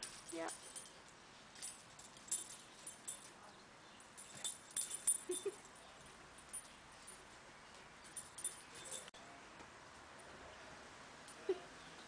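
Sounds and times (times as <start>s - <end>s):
collar tags jingling and claws clicking: 0.0s - 9.2s.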